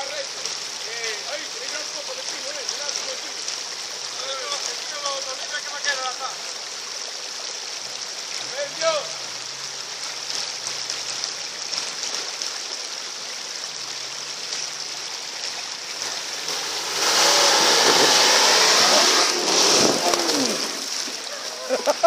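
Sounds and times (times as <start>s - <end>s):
steady hiss: 0.0s - 22.0s
vehicle engine in mud: 15.5s - 22.0s
loud rushing noise: 16.1s - 21.2s.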